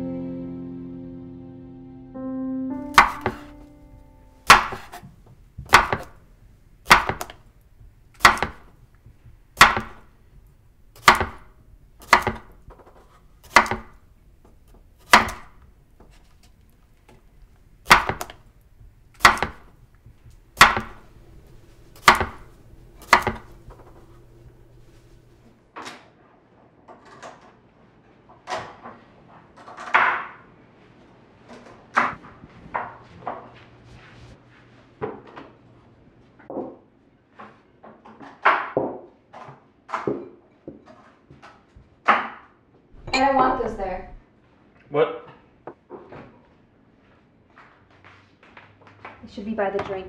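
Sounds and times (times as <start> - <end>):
knife cutting on wooden board: 2.9 - 3.6, 4.4 - 7.5, 8.1 - 14.1, 14.7 - 16.4, 17.8 - 18.5, 19.1 - 25.4.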